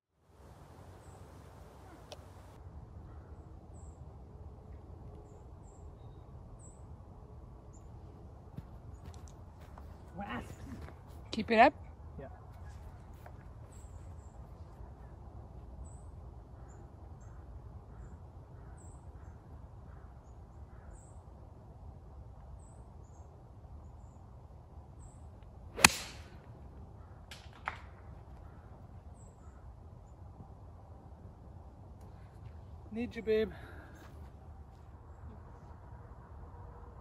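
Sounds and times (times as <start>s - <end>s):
golf club striking ball: 25.8s - 26.5s.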